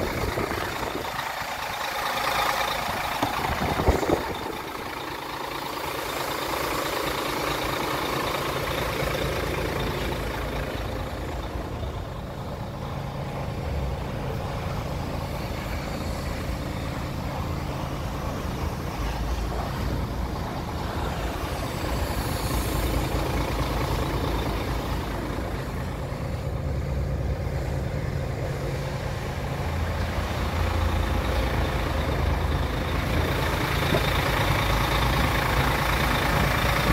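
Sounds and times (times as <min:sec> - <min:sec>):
diesel engine idling: 0:00.0 - 0:36.9.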